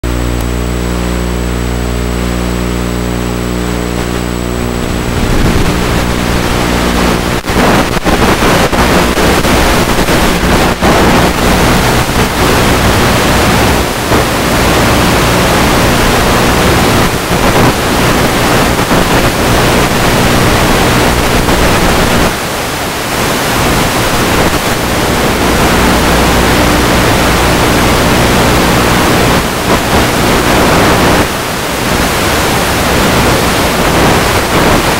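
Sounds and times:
electric propeller motor humming: 0:00.0 - 0:18.5
wind rushing on microphone: 0:04.1 - 0:34.9.

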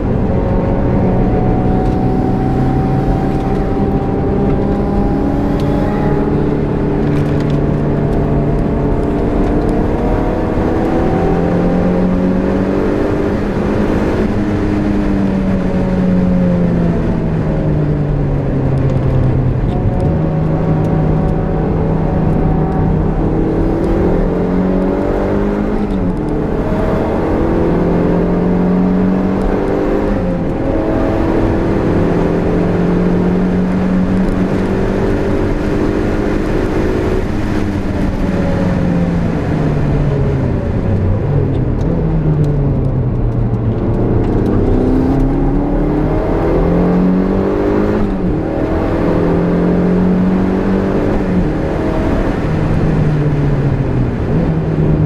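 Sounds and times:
car engine revving: 0:00.0 - 0:55.0
road and wind noise: 0:00.0 - 0:55.0.

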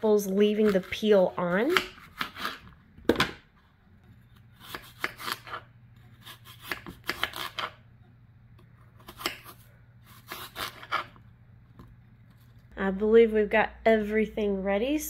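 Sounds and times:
knife slicing crisp apple: 0:00.4 - 0:02.7, 0:04.4 - 0:07.8, 0:09.0 - 0:11.2.

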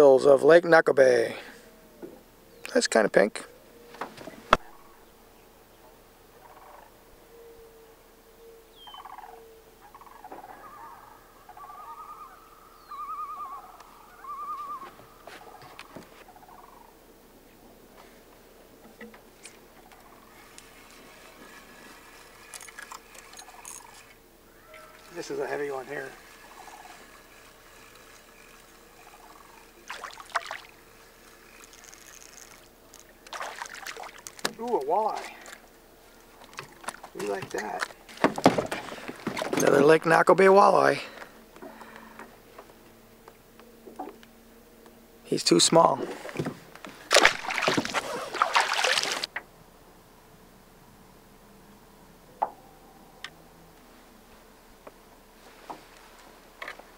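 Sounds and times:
faint steady hum: 0:00.0 - 0:56.9
bird calls and warbles: 0:01.6 - 0:17.1, 0:18.8 - 0:40.0
fish splashing at surface: 0:29.8 - 0:30.8, 0:33.2 - 0:34.5, 0:47.1 - 0:49.3.

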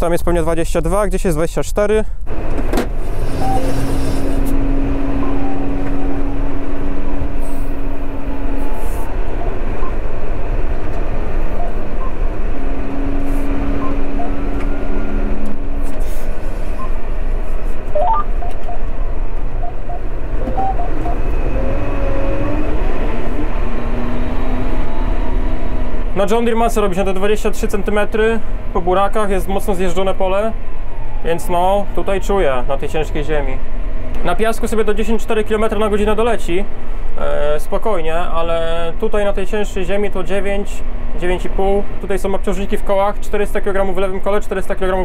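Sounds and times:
diesel tractor engine droning: 0:02.2 - 0:37.2
steady tone: 0:03.3 - 0:22.9.

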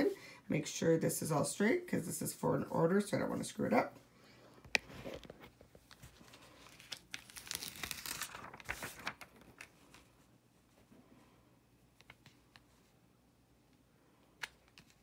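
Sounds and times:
plastic sheet crinkling: 0:04.9 - 0:10.1.

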